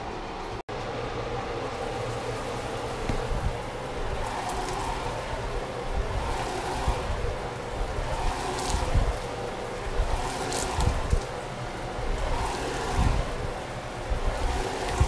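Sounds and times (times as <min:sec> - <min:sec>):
oil spitting: 0:02.0 - 0:15.0
low handling thumps: 0:03.0 - 0:04.3.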